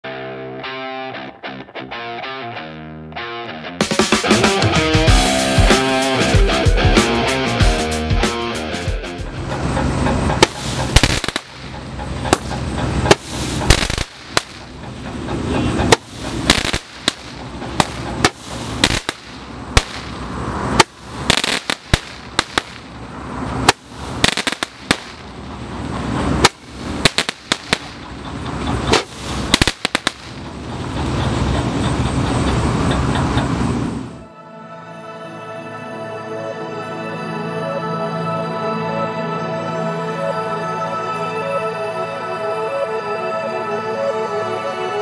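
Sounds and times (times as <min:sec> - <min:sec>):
steady rushing noise: 0:03.8 - 0:34.3
crackling firework bursts: 0:10.4 - 0:14.7, 0:15.9 - 0:23.0, 0:23.6 - 0:28.1, 0:28.9 - 0:30.5.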